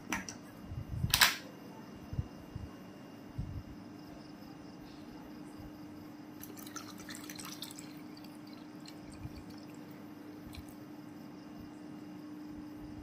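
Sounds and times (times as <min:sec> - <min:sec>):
water dripping: 0:06.4 - 0:10.8
water pouring into cup: 0:06.4 - 0:10.8.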